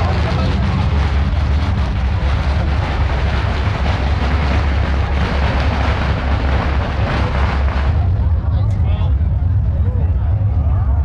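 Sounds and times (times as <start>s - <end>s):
firecrackers crackling: 0.0s - 8.5s
wind buffeting microphone: 0.0s - 10.6s.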